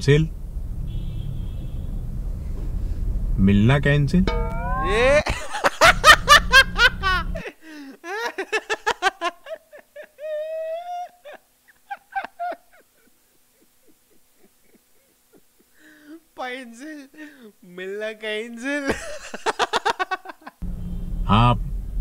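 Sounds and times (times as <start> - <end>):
man laughing hard: 5.2 - 16.2, 18.8 - 20.6
short gasps: 15.8 - 16.2, 17.2 - 17.5.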